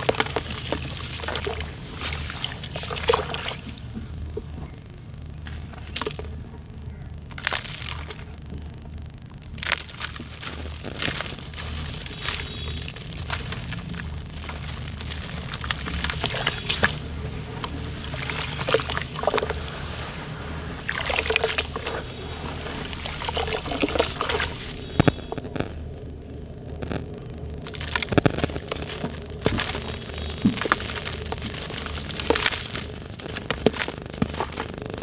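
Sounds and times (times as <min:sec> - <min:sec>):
hands sloshing in muddy water: 0:00.0 - 0:03.8, 0:11.1 - 0:17.0, 0:17.6 - 0:20.0, 0:20.8 - 0:24.8.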